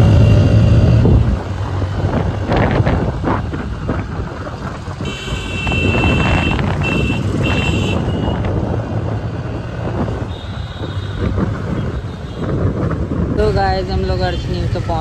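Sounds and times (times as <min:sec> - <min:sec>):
traffic noise: 0:00.0 - 0:15.0
wind buffeting microphone: 0:00.6 - 0:15.0
high-pitched horn blasts: 0:05.0 - 0:08.4.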